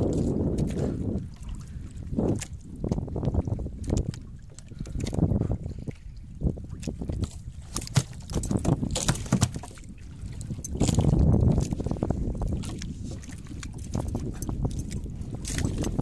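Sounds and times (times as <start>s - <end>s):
wind and sea rumble: 0.0s - 16.0s
short knocks on boat: 7.7s - 9.9s.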